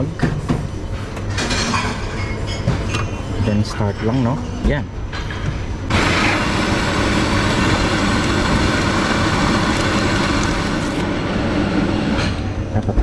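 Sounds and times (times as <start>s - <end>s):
coffee machine whirring: 5.9s - 12.7s.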